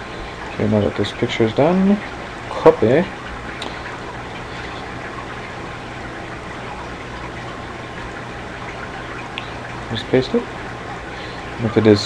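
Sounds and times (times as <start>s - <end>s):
low even hum: 0.0s - 12.0s.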